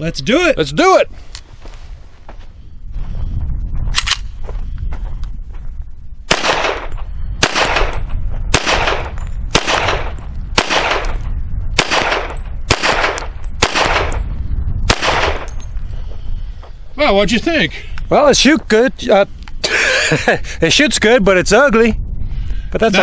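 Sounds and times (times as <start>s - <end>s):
low rumble: 1.5s - 19.6s, 21.1s - 23.0s
pistol shots echoing: 6.3s - 11.2s, 11.8s - 14.2s, 14.9s - 15.5s.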